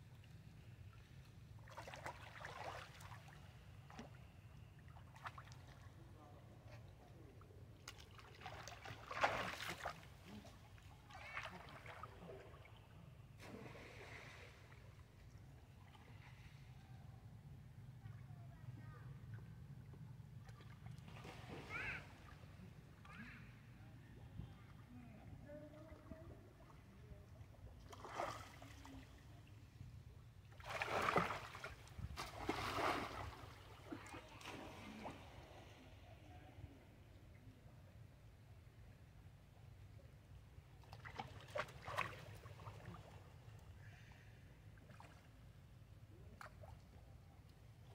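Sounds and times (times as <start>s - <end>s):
water splashing and sloshing: 0.2s - 6.1s, 7.7s - 16.7s, 20.3s - 23.4s, 24.3s - 36.0s, 40.8s - 44.2s, 44.8s - 45.6s.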